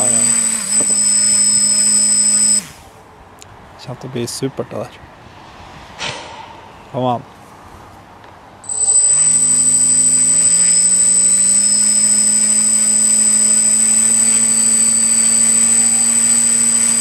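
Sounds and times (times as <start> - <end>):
high-pitched whine: 0.0 - 2.8, 8.6 - 17.0
quadcopter motors buzzing: 0.0 - 2.8, 8.7 - 17.0.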